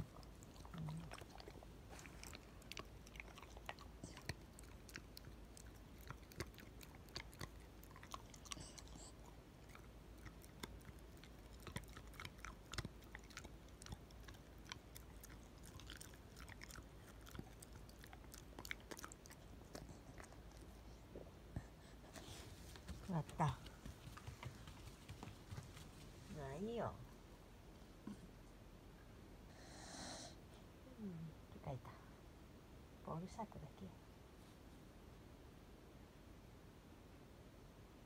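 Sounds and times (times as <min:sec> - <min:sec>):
dog chewing with crunching clicks: 0:00.0 - 0:20.9.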